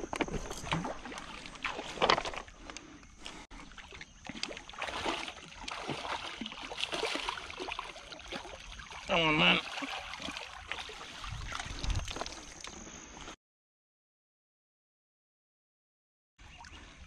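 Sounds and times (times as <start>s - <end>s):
water splashing: 0.3s - 2.6s, 3.3s - 12.8s.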